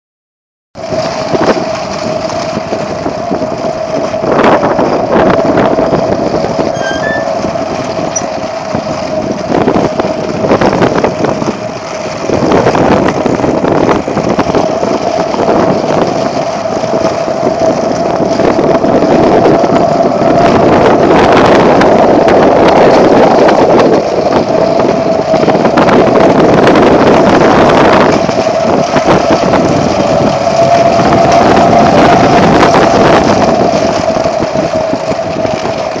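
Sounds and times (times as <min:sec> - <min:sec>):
strong wind buffeting microphone: 0:00.8 - 0:36.0
steady high tone: 0:05.9 - 0:08.4.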